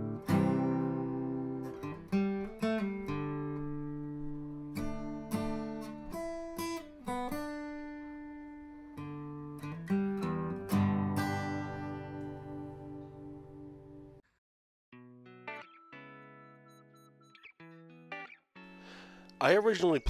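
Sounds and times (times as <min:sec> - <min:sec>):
acoustic guitar: 0:00.0 - 0:14.2.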